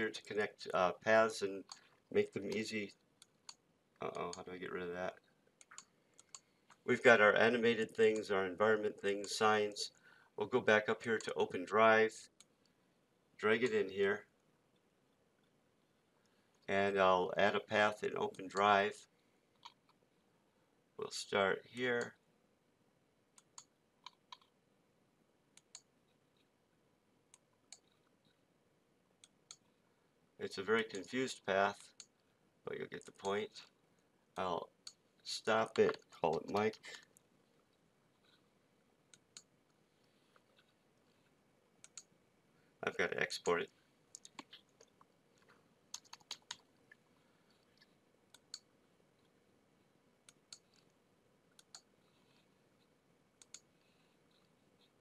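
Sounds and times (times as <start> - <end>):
computer mouse clicks: 5.6 - 6.8, 23.4 - 24.5, 25.6 - 26.5, 27.3 - 28.1, 41.8 - 42.1, 45.9 - 46.7, 51.5 - 51.9, 53.4 - 53.7
faint computer mouse clicks: 5.6 - 6.8, 41.8 - 42.1, 51.5 - 51.9, 53.4 - 53.7
keyboard typing: 45.9 - 46.7.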